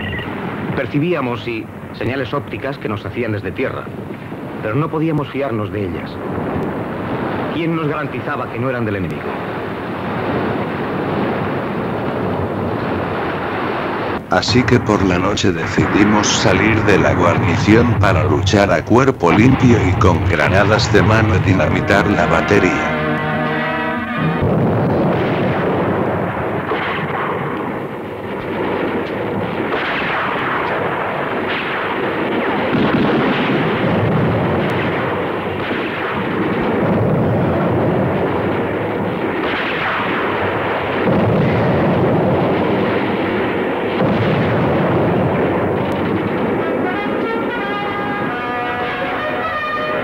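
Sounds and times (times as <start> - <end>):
artillery explosions: 0.0 - 50.0
gunfire: 15.0 - 50.0.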